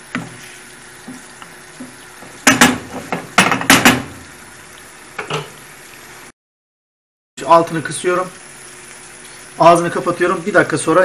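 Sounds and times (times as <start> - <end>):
food sizzling in pan: 0.0 - 6.4, 7.4 - 11.0
wooden spoon knocking on pan: 1.1 - 4.2.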